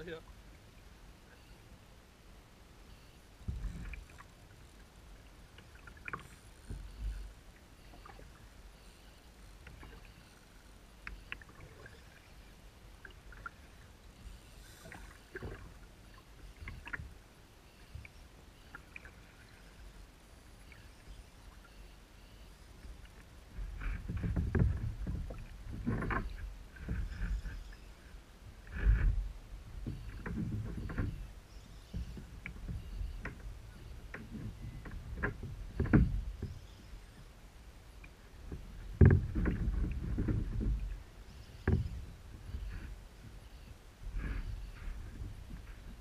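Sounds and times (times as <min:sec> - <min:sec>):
waves lapping against kayak: 0:03.4 - 0:46.0
hull thumping on water: 0:23.6 - 0:27.2, 0:34.1 - 0:36.6, 0:38.5 - 0:41.0.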